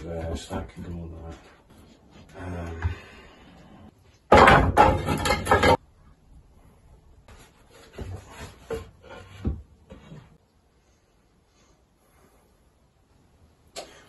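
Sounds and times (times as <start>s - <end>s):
wooden poles knocking together: 4.3s - 5.8s.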